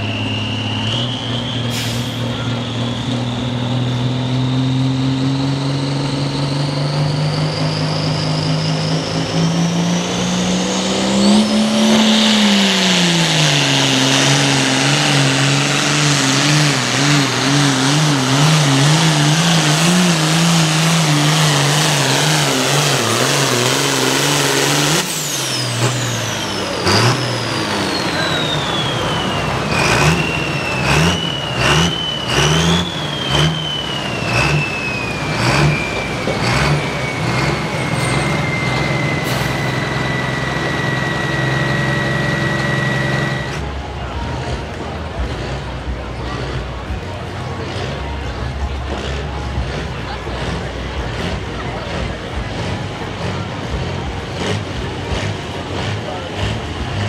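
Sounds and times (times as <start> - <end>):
tractor diesel engine at full throttle: 0.0 - 57.0.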